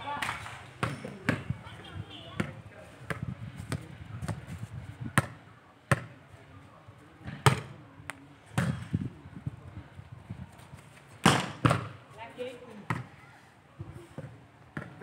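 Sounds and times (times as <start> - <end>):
volleyball slaps and thuds: 7.4 - 7.7, 8.6 - 8.9, 11.2 - 12.0.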